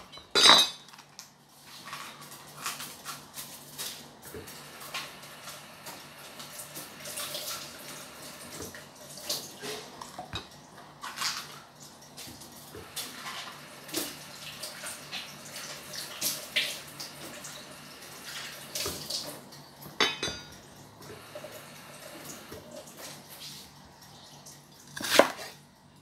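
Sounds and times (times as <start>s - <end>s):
tap water running into sink: 4.3s - 25.0s.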